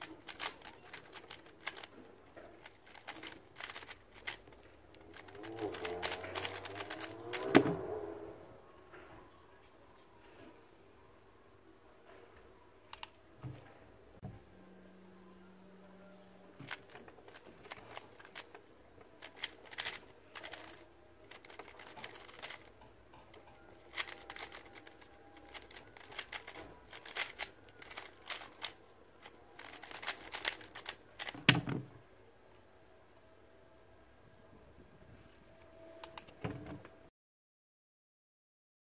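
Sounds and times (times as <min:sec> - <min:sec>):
puzzle cube layers clicking: 0:00.0 - 0:01.9, 0:02.6 - 0:07.6, 0:19.2 - 0:22.7, 0:23.8 - 0:31.4.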